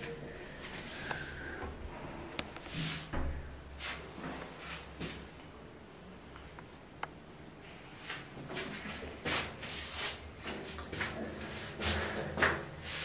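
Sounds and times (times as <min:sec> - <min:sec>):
rustling and shuffling: 0:00.0 - 0:05.4, 0:07.6 - 0:13.0.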